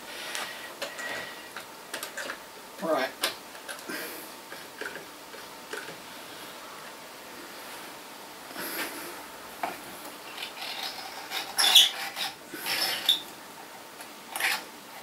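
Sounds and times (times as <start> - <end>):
scrapes and squeaks: 10.3 - 13.3.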